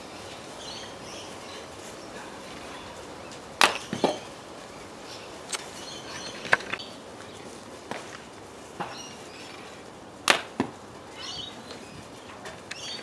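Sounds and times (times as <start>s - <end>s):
birds chirping faintly: 0.0s - 10.1s, 10.8s - 13.0s
slingbow sharp crack: 3.6s - 4.0s, 10.3s - 10.7s.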